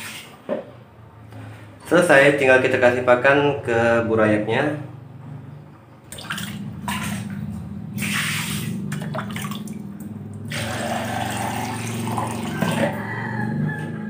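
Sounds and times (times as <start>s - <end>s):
steady low hum: 0.8s - 12.4s
tap water running and splashing: 8.0s - 13.0s.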